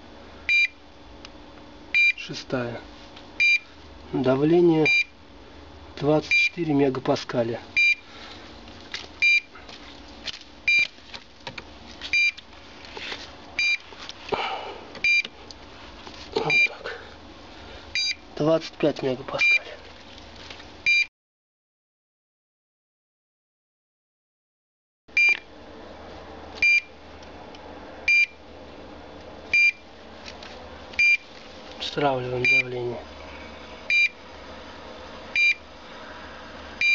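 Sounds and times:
locator short high beeps: 7.8 - 8.0, 26.6 - 26.9.

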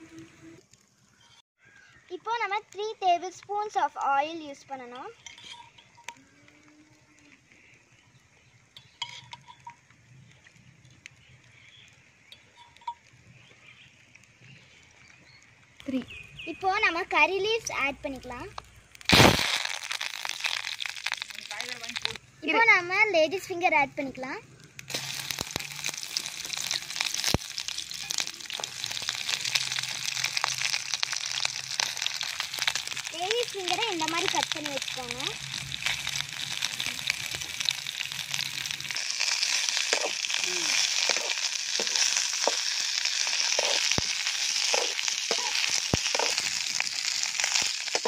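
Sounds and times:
sharp crackles and clicks: 0.0 - 48.0
oil sizzling in a pan: 16.1 - 23.6, 24.8 - 48.0.

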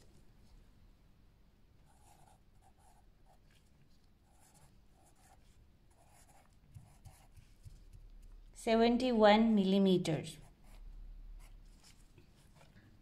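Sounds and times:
pencil scratching on paper: 1.9 - 3.5, 4.2 - 8.2.

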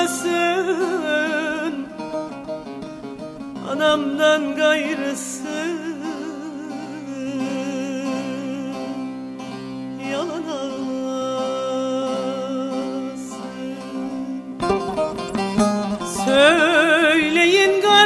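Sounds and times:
ornamented melody with vibrato: 0.0 - 18.0.

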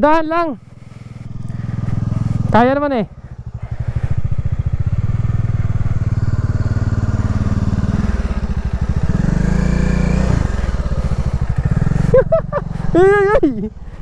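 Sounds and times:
scooter engine running: 0.6 - 14.0.

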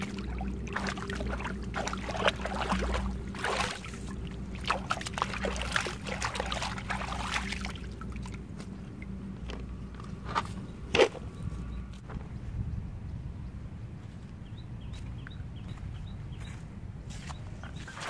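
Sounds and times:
water splashing and sloshing: 0.0 - 12.1, 17.6 - 18.0.

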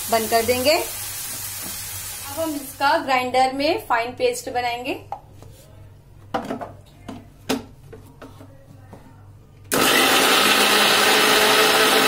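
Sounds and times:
mixer grinder motor grinding: 9.7 - 12.0.

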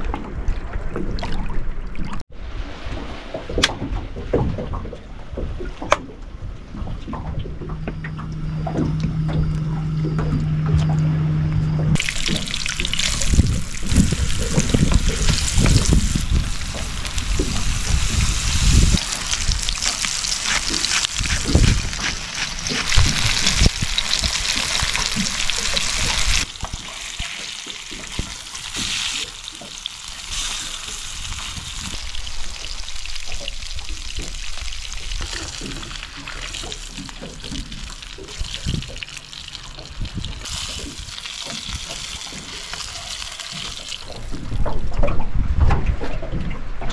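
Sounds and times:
low rumbles: 0.0 - 27.0
fish sizzling in frying pan: 22.8 - 35.3.

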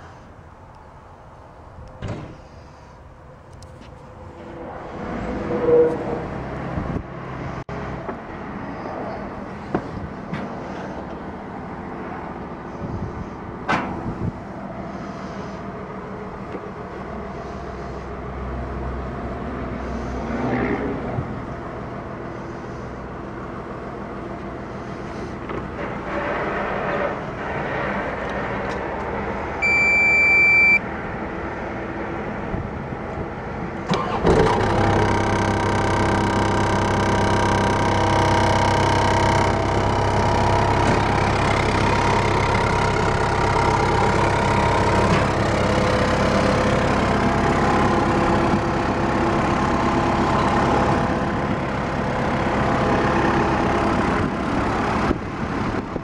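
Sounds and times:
diesel engine starting and idling: 0.0 - 56.0
electronic warning beep: 29.6 - 30.8.

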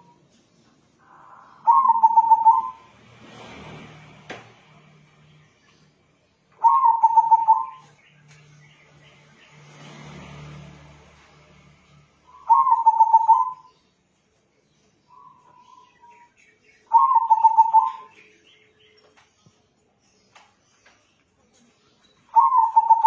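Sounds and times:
dove cooing: 1.1 - 2.9, 6.6 - 7.9, 12.4 - 13.7, 16.9 - 18.1, 22.3 - 23.0.

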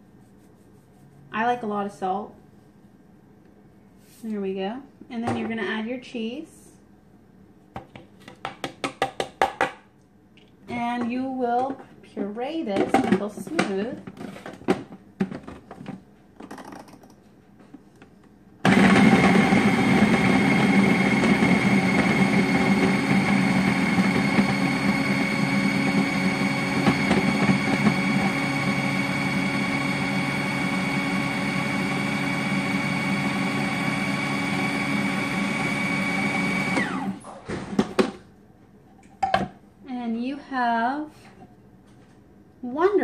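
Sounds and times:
food processor motor whining: 18.6 - 37.4.

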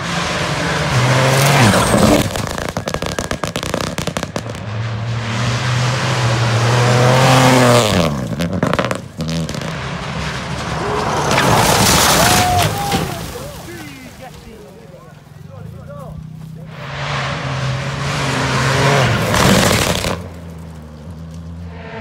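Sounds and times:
rally car engine revving: 0.0 - 12.1, 16.2 - 22.0
exhaust crackling pops: 1.9 - 4.7, 19.2 - 21.4.

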